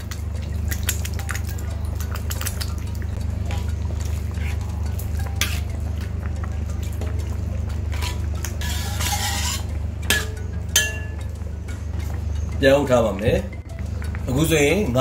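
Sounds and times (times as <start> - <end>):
broth sloshing: 0.0 - 14.6
steady low hum: 0.0 - 15.0
utensil knocking and scraping pot: 3.5 - 11.3.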